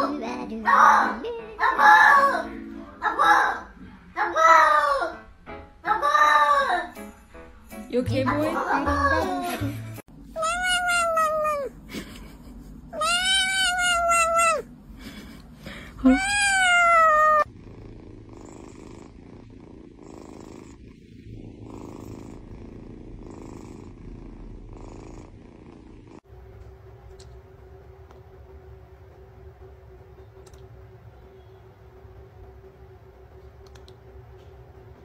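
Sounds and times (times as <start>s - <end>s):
cat meowing loudly: 10.4s - 11.7s, 13.0s - 14.7s, 16.0s - 17.5s.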